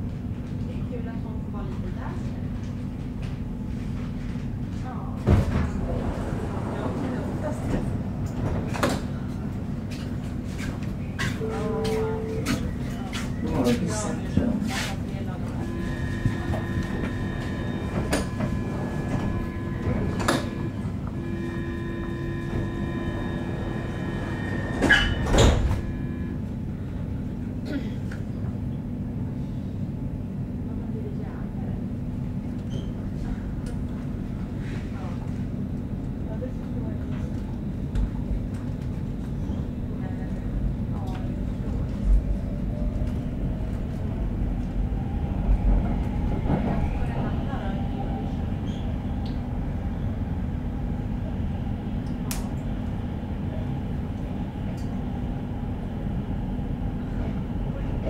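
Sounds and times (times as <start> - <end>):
subway wheels rumbling on track: 0.0 - 58.0
train low hum with tones: 0.0 - 58.0.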